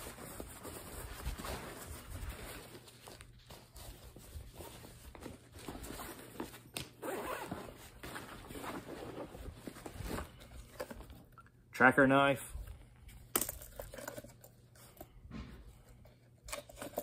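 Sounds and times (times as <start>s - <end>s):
zipper on a backpack: 7.0s - 7.8s.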